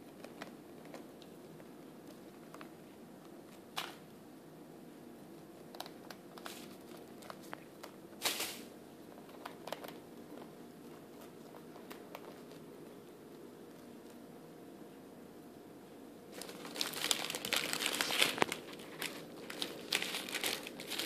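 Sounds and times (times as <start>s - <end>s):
hamster gnawing bread crust: 0.0s - 3.8s, 5.2s - 8.2s, 9.0s - 14.3s
low steady hum: 0.0s - 21.0s.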